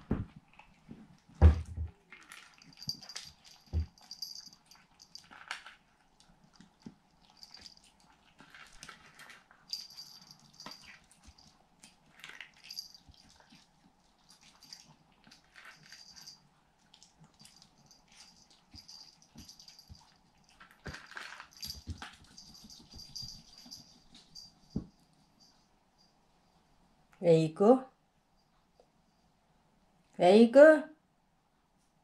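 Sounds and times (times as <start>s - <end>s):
dog crunching dry kibble: 2.0s - 24.4s.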